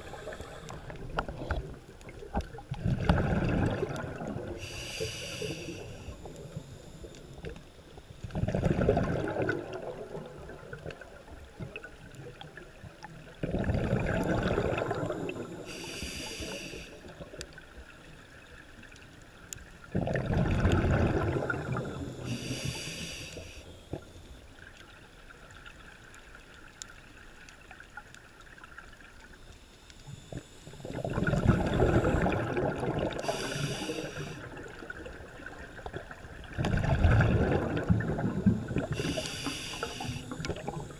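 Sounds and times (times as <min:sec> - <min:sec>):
regulator hiss on inhale: 0:00.0 - 0:01.6, 0:04.5 - 0:07.5, 0:14.8 - 0:17.3, 0:21.8 - 0:24.2, 0:33.1 - 0:34.7, 0:38.4 - 0:40.9
exhaled bubbles underwater: 0:00.0 - 0:18.5, 0:19.7 - 0:24.1, 0:30.1 - 0:40.9.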